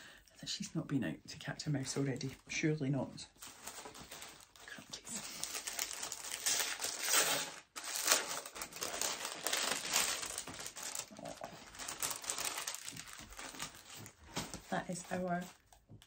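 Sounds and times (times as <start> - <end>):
paper bag crinkling: 3.4 - 15.6.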